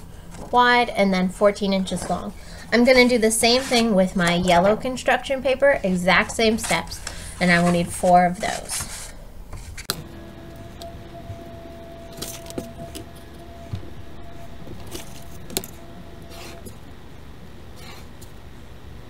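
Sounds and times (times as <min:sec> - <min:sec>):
pen scratching on paper: 0:16.2 - 0:16.7.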